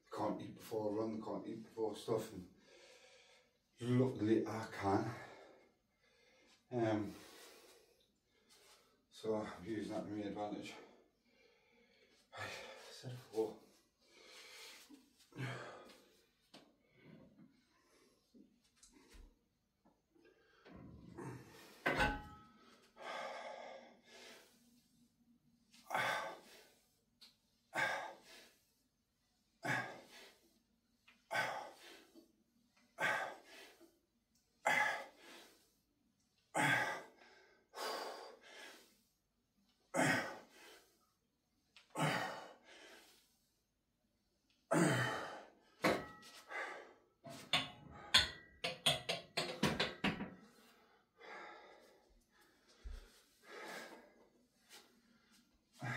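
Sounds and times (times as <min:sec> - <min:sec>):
man panting: 0:11.3 - 0:13.4, 0:14.1 - 0:16.3, 0:22.9 - 0:24.9, 0:25.8 - 0:27.0, 0:27.6 - 0:28.8, 0:29.4 - 0:30.6, 0:31.2 - 0:33.9, 0:34.5 - 0:35.8, 0:36.5 - 0:39.1, 0:39.9 - 0:41.1, 0:41.9 - 0:43.5, 0:44.7 - 0:48.4, 0:50.4 - 0:55.9.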